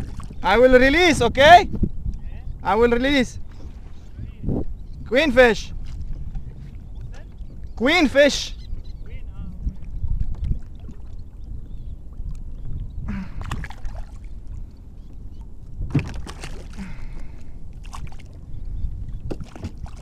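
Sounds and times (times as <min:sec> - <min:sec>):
water splashing against kayak: 0:00.0 - 0:01.0, 0:05.5 - 0:20.0
low rumble of water on microphone: 0:00.0 - 0:02.6, 0:03.2 - 0:07.9, 0:08.5 - 0:20.0.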